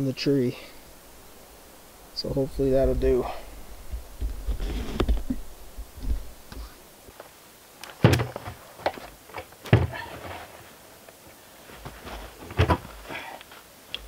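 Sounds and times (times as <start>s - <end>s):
plastic barrel thudding: 8.0s - 8.6s, 9.6s - 10.2s.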